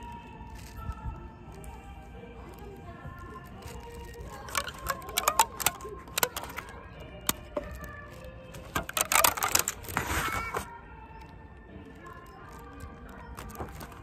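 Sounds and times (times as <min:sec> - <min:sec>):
packaging crinkling: 0:00.0 - 0:10.7, 0:12.0 - 0:14.0
faint background music: 0:00.0 - 0:14.0
sharp clicks: 0:03.5 - 0:11.4.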